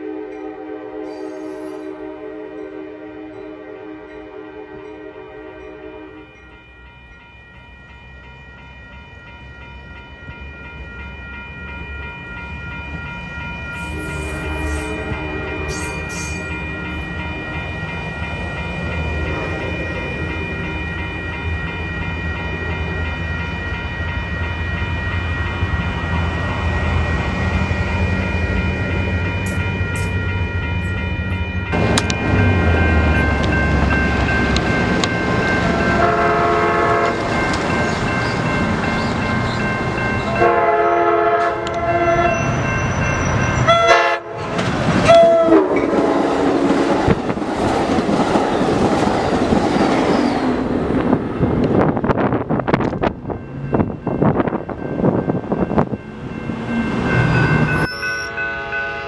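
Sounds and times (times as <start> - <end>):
locomotive air horn blasts: 0.0 - 6.4, 13.8 - 16.4, 35.7 - 37.3, 40.4 - 42.6, 43.7 - 46.9, 58.1 - 59.0
train rumble: 2.7 - 59.0.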